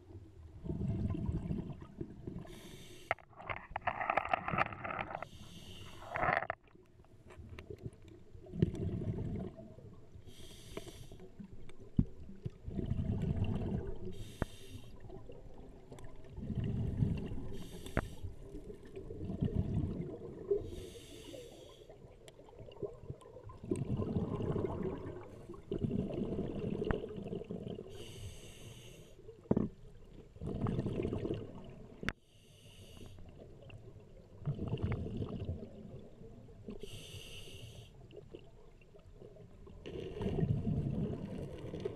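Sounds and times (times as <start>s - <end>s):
exhaled bubbles rumbling: 0.0s - 2.6s, 7.7s - 10.2s, 11.4s - 14.2s, 15.0s - 17.7s, 18.3s - 20.8s, 21.9s - 28.0s, 29.4s - 32.1s, 33.3s - 36.7s, 38.2s - 41.9s
diver breathing through regulator: 2.4s - 3.3s, 5.1s - 6.3s, 10.3s - 11.2s, 14.1s - 15.0s, 17.4s - 18.4s, 20.6s - 21.9s, 27.9s - 29.2s, 32.2s - 33.2s, 36.8s - 38.0s.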